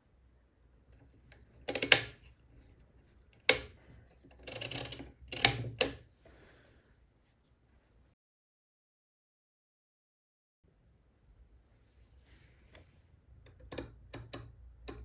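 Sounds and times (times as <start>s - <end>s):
metallic ratcheting of calculator wheels: 1.3s - 2.2s, 3.4s - 6.0s.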